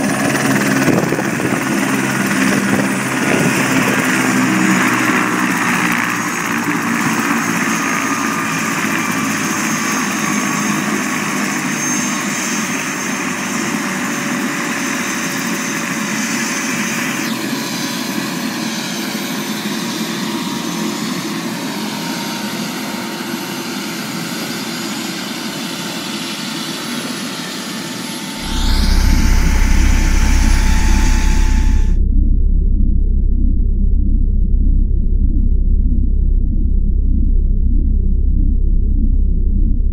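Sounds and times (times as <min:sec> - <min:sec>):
helicopter turbine whine: 0:00.0 - 0:39.9
high whine dropping in pitch: 0:28.4 - 0:39.9
rising whoosh and deep rumble: 0:28.4 - 0:39.9.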